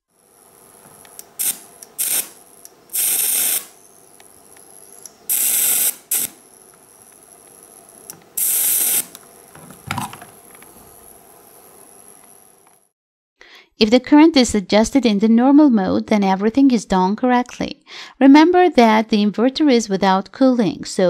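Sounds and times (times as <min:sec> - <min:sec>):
sizzling electric arc: 0:00.0 - 0:12.9.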